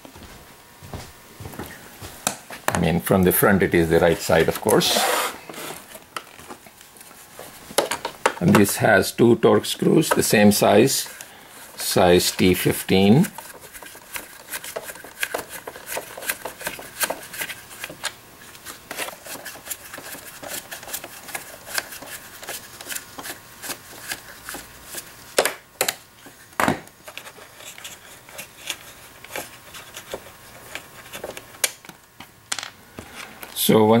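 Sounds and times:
screwdriver clicking and scraping: 27.0s - 31.8s.

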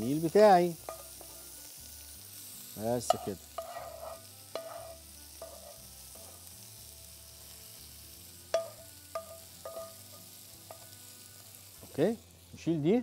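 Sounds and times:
faint sizzle: 0.0s - 13.0s
wooden spatula scraping pan: 3.0s - 6.4s
spatula knocking on pans ringing: 8.5s - 10.1s.

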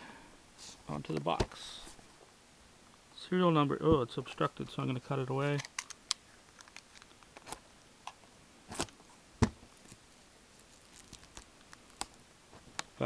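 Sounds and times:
wrap crinkling: 9.7s - 12.2s.

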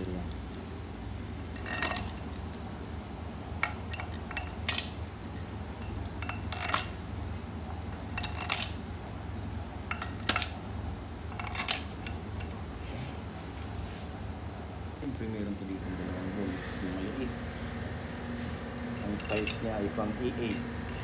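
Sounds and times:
steady low hum: 0.0s - 21.0s
metallic clinks of tools: 1.6s - 2.6s, 3.6s - 7.0s, 9.9s - 10.6s, 19.0s - 21.0s.

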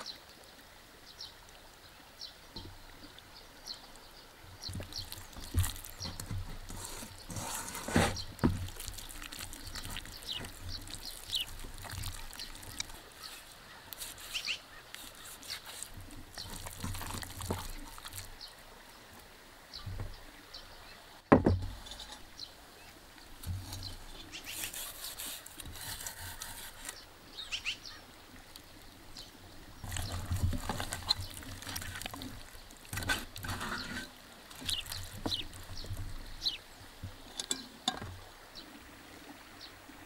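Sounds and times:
birds chirping: 2.2s - 19.0s, 19.7s - 38.8s
marinade spread over raw meat: 8.2s - 18.4s
heavy pot knocking on table: 21.3s - 21.7s
knife cutting meat: 24.5s - 27.0s.

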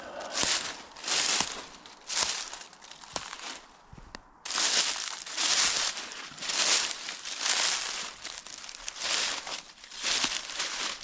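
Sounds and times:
footsteps crunching through dry leaves: 0.0s - 11.0s.

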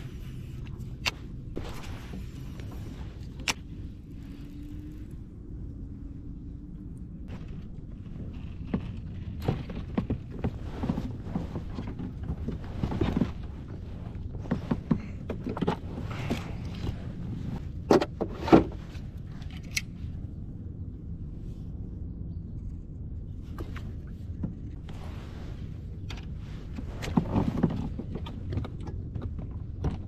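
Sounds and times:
steady low rumble: 0.0s - 30.0s
fishing gear knocking and rustling: 7.3s - 19.9s.

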